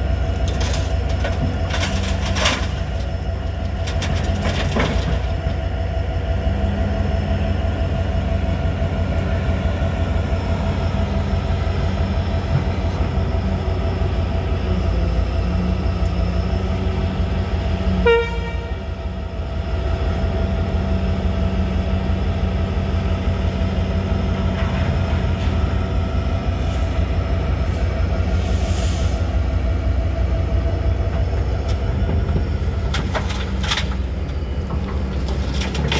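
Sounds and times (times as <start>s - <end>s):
excavator diesel engine running: 0.0s - 35.9s
earth and stones clattering into truck: 0.3s - 3.1s, 3.7s - 5.4s, 32.2s - 35.9s
horn toot: 18.0s - 18.8s.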